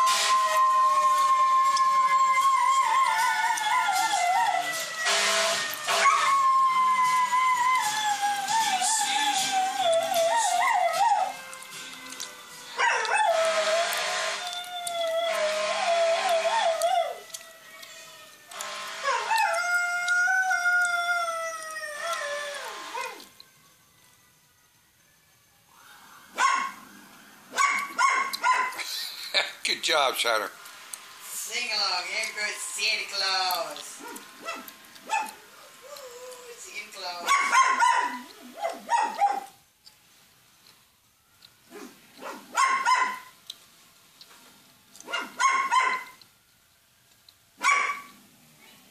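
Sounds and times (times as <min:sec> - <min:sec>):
dog howling: 0:00.0 - 0:23.5, 0:26.3 - 0:28.8, 0:31.8 - 0:39.6
dog barking: 0:12.8 - 0:13.4, 0:26.3 - 0:26.8, 0:27.5 - 0:28.8, 0:34.0 - 0:35.4, 0:37.2 - 0:39.6, 0:41.7 - 0:43.3, 0:45.0 - 0:46.2, 0:47.6 - 0:48.2.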